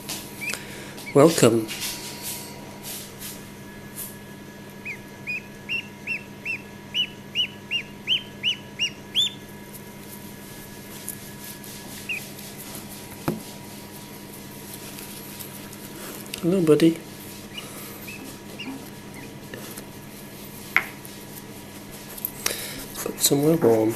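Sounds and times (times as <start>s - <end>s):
duckling peeping: 0.3s - 1.4s, 4.7s - 9.8s, 11.2s - 12.5s, 17.2s - 19.9s.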